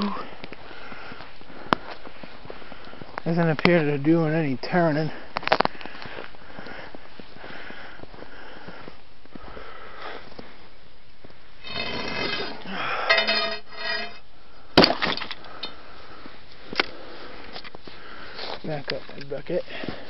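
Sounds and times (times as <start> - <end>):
footsteps crunching in snow: 16.2 - 20.0.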